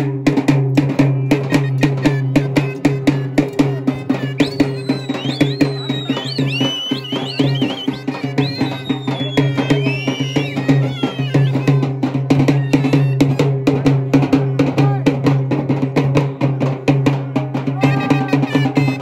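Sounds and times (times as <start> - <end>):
drums beaten in quick strokes: 0.0 - 19.0
high wavering tune: 1.3 - 13.3.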